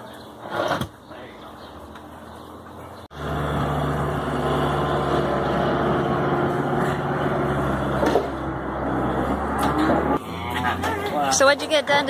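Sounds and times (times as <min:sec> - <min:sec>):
diesel engine running: 0:02.6 - 0:10.7.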